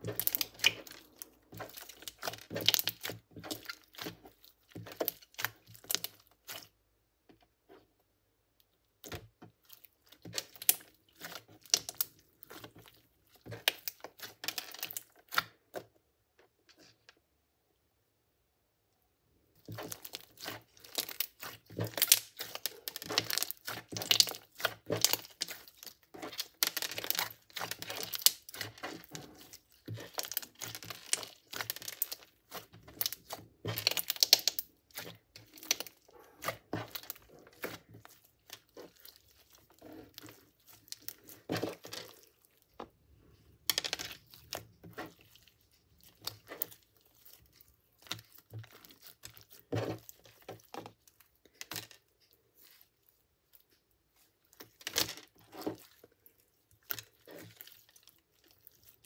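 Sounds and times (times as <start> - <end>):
slime crackling and popping: 0.0 - 6.7, 9.8 - 15.5, 19.6 - 42.6.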